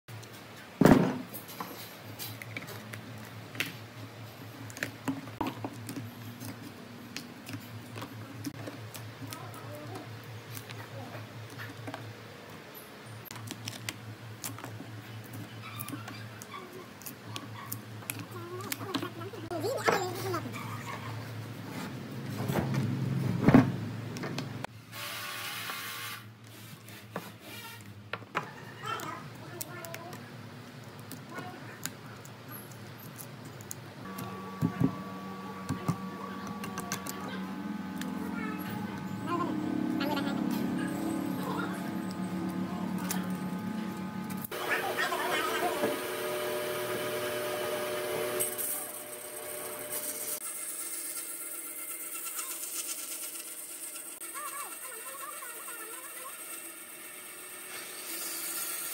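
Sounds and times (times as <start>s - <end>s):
steady low hum: 33.9s - 50.4s.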